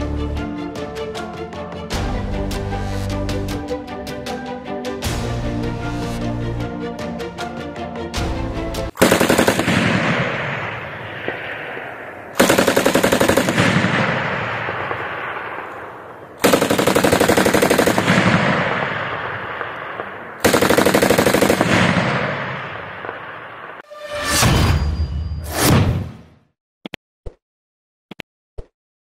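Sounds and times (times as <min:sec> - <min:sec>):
machine gun automatic fire: 0:09.0 - 0:10.3, 0:12.4 - 0:15.1, 0:16.4 - 0:22.3
gunfire echo: 0:09.0 - 0:23.8.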